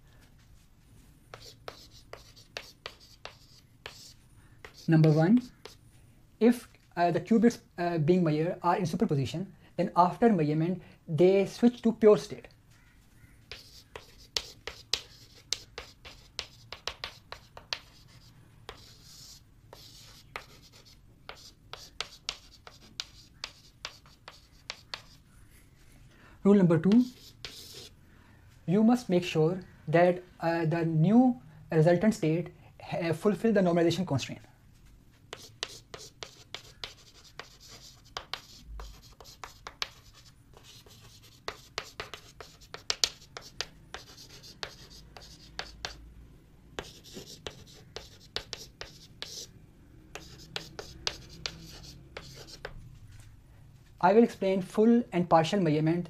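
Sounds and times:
chalk tapping and scratching: 1.3 - 5.8, 13.5 - 25.2, 26.9 - 27.9, 35.1 - 46.0, 46.8 - 49.5, 50.1 - 52.8.

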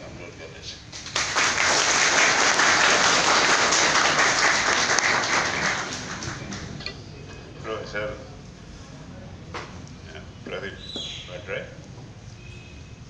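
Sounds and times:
audience clapping: 0.9 - 6.8.

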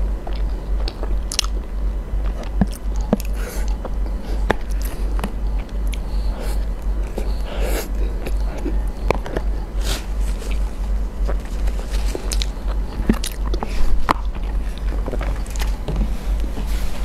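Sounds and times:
steady low hum: 0.0 - 17.0
mouth smacks and slurps: 2.2 - 15.7.

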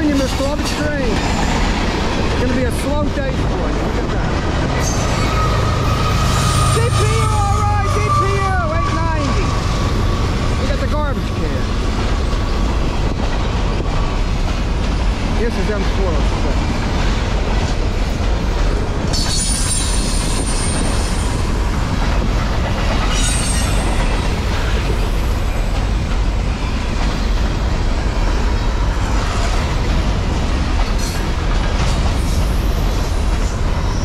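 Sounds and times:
train wheels rumbling on rail: 0.0 - 34.0
high wheel squeals: 4.8 - 10.6, 19.2 - 21.4, 23.0 - 24.1.

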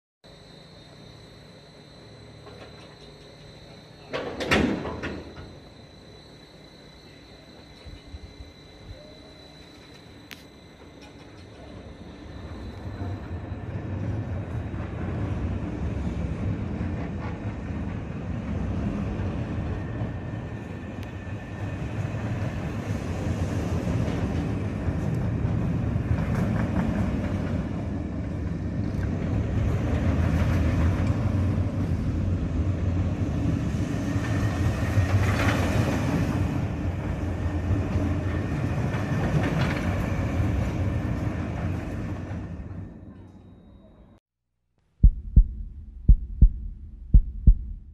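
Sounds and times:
coaster wheels rumbling on rails: 10.8 - 43.1
coaster car rattling: 11.0 - 42.9.

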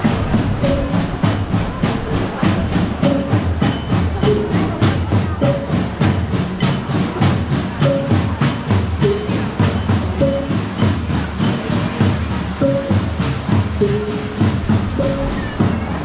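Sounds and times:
short high notes: 0.0 - 7.0
fast drum beat: 0.0 - 16.0.

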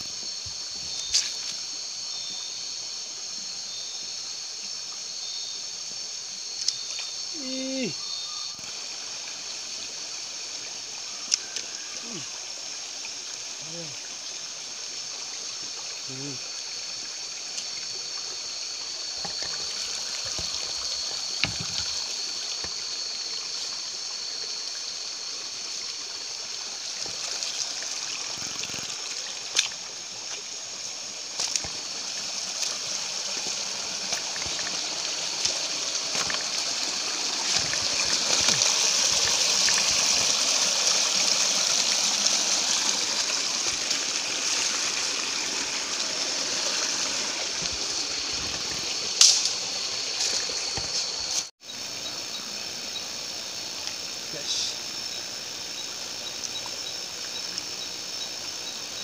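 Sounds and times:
stream water splashing: 7.9 - 51.5.

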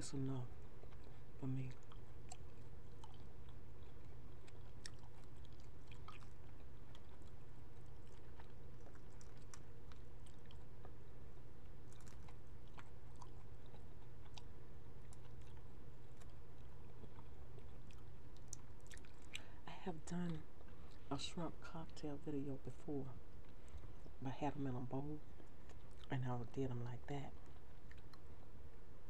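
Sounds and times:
low hum: 0.0 - 29.0
chewing: 0.4 - 19.6, 20.2 - 21.1, 23.2 - 24.2, 25.2 - 26.1, 27.3 - 28.5.

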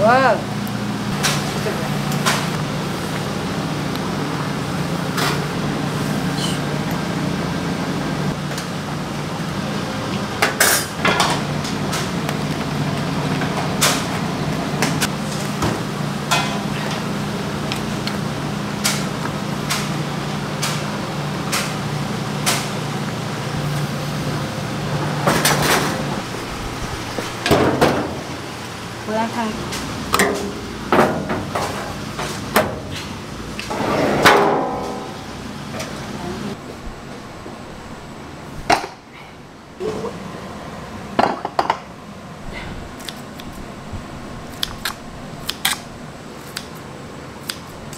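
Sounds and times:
low hum: 33.4 - 38.1.

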